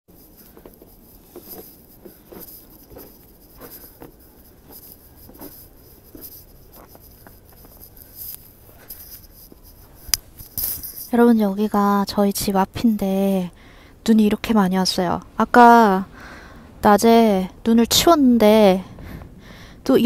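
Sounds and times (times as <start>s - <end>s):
footsteps crunching in snow: 0.2s - 10.0s.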